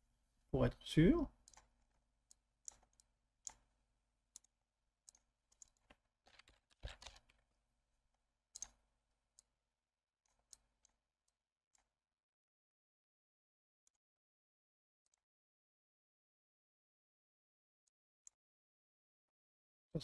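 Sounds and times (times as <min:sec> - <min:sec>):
computer mouse clicking: 0:01.4 - 0:03.7, 0:04.3 - 0:04.5, 0:05.1 - 0:07.4, 0:08.6 - 0:08.8.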